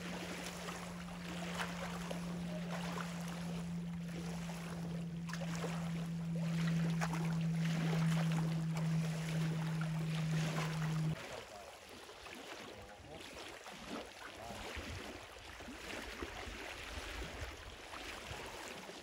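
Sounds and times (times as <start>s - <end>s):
motor droning: 0.0s - 11.3s.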